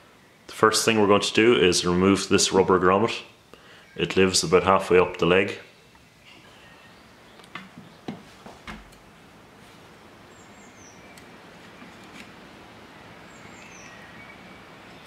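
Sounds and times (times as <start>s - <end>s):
small bird chirping: 10.3s - 12.2s, 13.0s - 15.0s.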